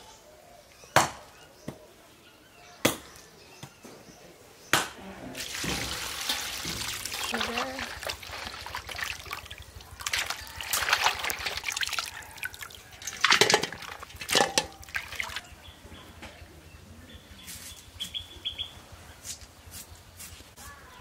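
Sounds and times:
water sloshing in a metal bowl: 5.4s - 15.7s.

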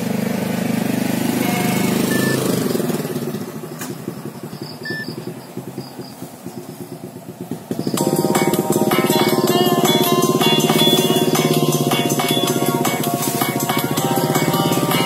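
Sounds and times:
phone electronic beeps: 1.4s - 2.5s, 4.8s - 5.2s.

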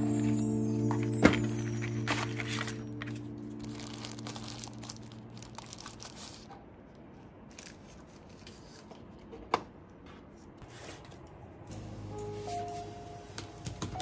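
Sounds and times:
cardboard and paper crinkling: 0.9s - 6.5s.

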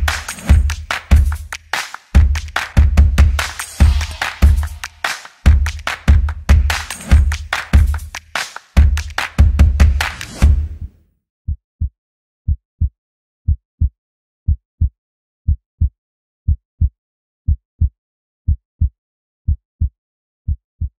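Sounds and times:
heartbeat lub-dub thumps: 0.0s - 8.2s, 8.8s - 10.9s.

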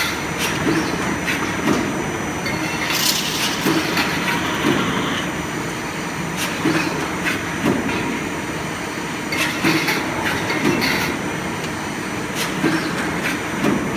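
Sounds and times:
power press machine din: 2.5s - 5.5s.

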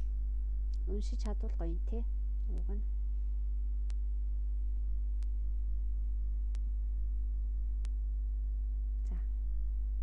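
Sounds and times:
low electrical hum: 0.0s - 10.0s
soft clicks: 2.4s - 2.8s, 3.8s - 4.0s, 5.2s - 5.4s, 6.5s - 6.7s, 7.8s - 8.0s.

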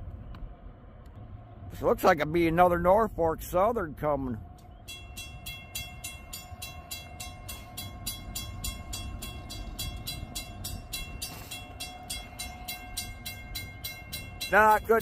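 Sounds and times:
low rumble: 0.0s - 15.0s
crossing warning bell ringing: 4.8s - 15.0s.

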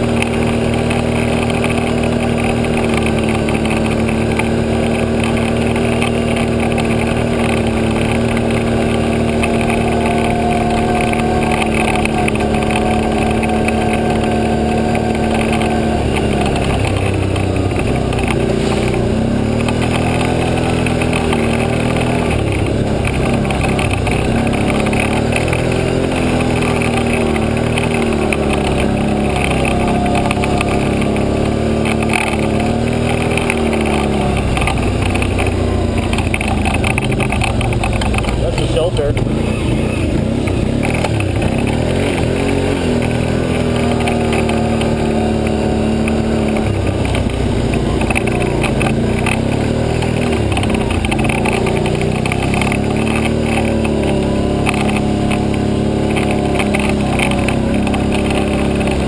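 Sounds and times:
quad bike engine revving: 0.0s - 59.0s.

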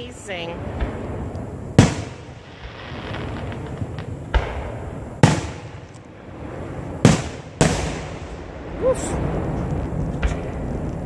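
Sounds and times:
faint crackling: 0.0s - 11.0s
firework shells bursting: 0.7s - 8.6s.

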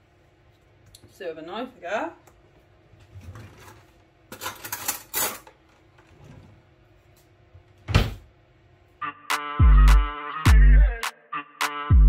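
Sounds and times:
background music with a beat: 9.0s - 12.0s.

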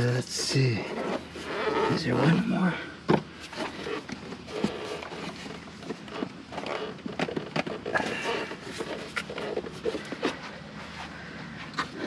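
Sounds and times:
plastic panel clicking and rubbing: 3.5s - 10.5s.

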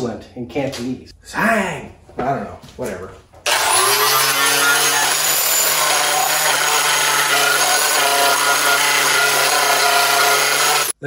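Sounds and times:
angle grinder grinding steel: 3.5s - 11.0s.

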